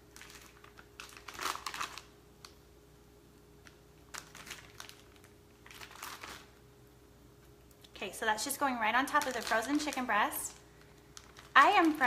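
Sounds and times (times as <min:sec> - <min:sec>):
plastic packaging crinkling: 0:00.0 - 0:02.6, 0:03.6 - 0:06.6, 0:08.4 - 0:12.0.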